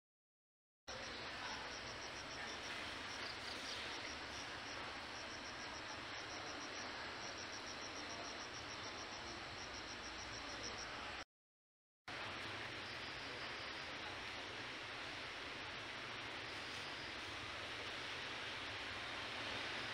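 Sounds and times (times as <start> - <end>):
insect chirping: 0.9 - 11.1, 12.7 - 14.1, 16.1 - 18.8
outdoor ambience hiss: 0.9 - 11.2, 12.1 - 19.9.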